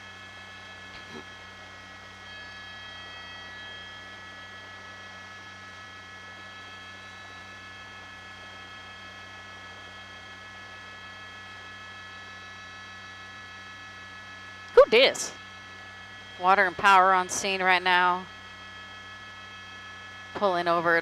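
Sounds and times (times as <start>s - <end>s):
helicopter cabin noise: 14.7s - 18.4s.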